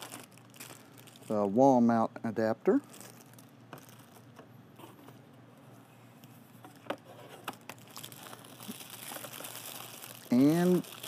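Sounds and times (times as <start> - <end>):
plastic bag crinkling: 0.0 - 1.7, 2.7 - 4.3, 7.5 - 11.0.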